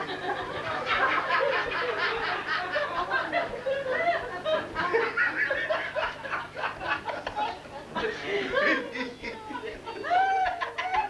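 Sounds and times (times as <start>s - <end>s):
audience laughing: 0.0s - 11.0s.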